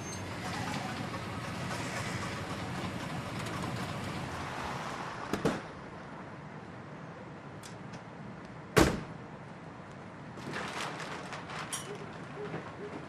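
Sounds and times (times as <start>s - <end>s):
truck engine running: 0.0s - 4.4s.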